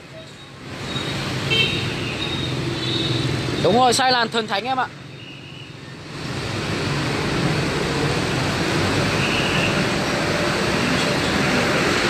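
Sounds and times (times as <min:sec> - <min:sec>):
street traffic passing: 0:00.0 - 0:12.0.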